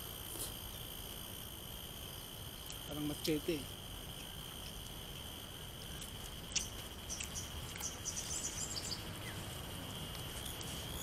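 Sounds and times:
high-pitched insect drone: 0.0s - 11.0s
bird chirps: 6.5s - 9.5s.

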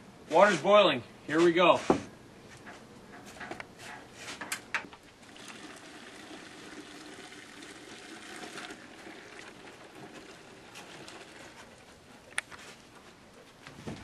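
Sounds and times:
water pouring into plastic cooler: 5.2s - 12.0s.

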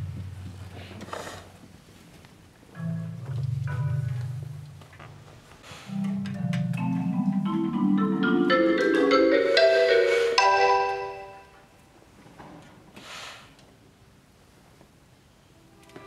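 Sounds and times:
marimba playing: 2.8s - 4.6s, 5.9s - 11.6s.

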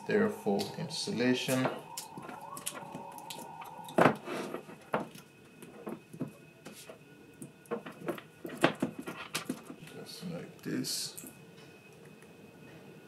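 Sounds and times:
handling noise of wires and cells: 0.0s - 13.0s.

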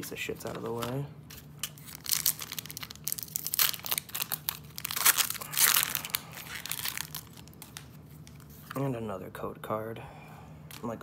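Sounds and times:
foil wrapper crinkling: 0.4s - 8.7s.

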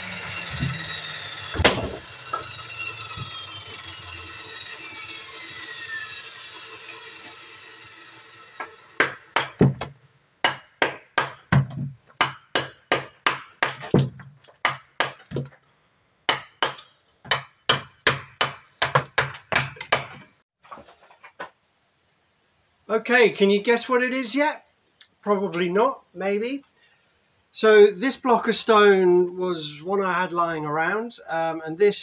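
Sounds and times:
mechanical whine: 0.0s - 9.8s.

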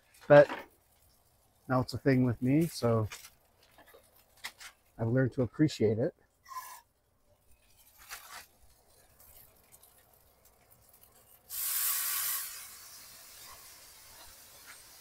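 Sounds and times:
water sizzling in hot skillet: 7.7s - 15.0s.

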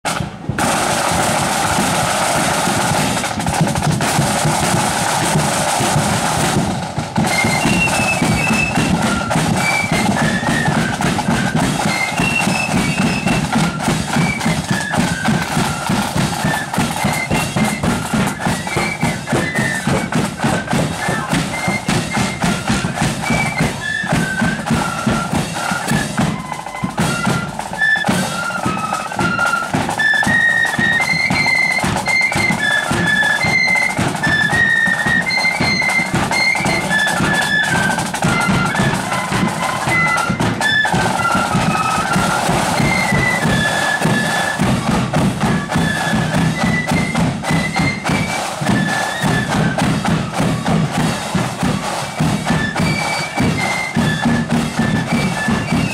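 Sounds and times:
bass and side drums: 0.1s - 27.7s
flutes playing high melody: 0.1s - 55.9s.

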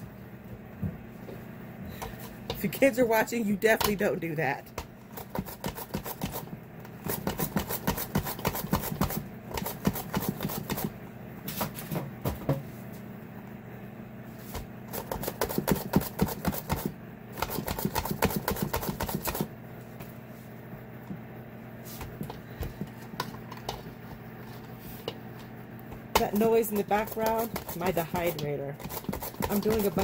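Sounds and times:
food dehydrator humming: 0.0s - 30.0s
mandoline slicing cucumbers: 5.1s - 10.9s, 14.9s - 19.5s, 26.2s - 30.0s.

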